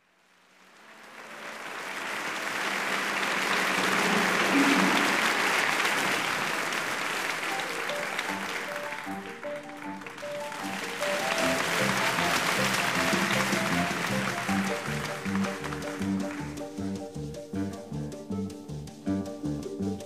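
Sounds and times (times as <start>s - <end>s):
audience applause: 0.0s - 17.0s
instrumental song introduction: 6.8s - 20.0s.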